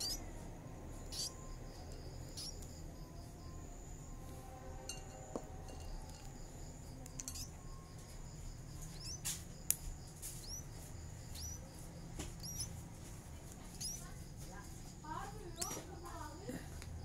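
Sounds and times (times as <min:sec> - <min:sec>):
nestling birds peeping: 0:00.0 - 0:04.4, 0:05.9 - 0:17.0.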